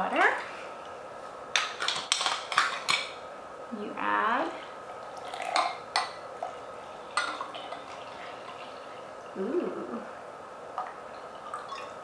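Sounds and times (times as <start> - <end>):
water pouring into a glass: 5.0 - 5.8, 10.8 - 12.0.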